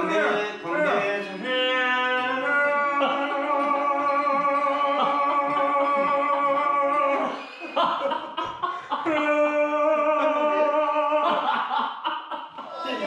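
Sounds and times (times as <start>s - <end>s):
man singing operatic notes: 0.1s - 7.4s, 9.0s - 11.3s.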